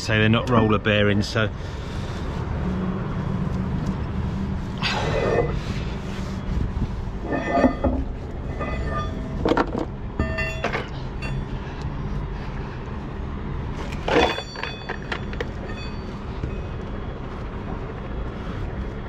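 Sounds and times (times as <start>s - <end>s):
low engine rumble: 0.0s - 19.0s
metal tools clanking: 7.2s - 11.5s, 13.8s - 16.1s.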